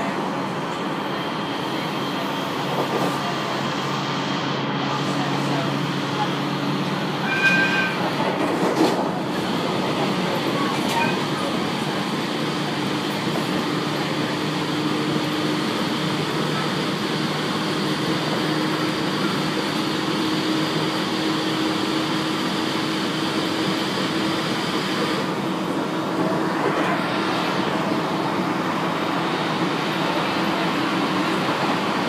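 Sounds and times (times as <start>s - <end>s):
electric train rolling: 0.0s - 32.0s.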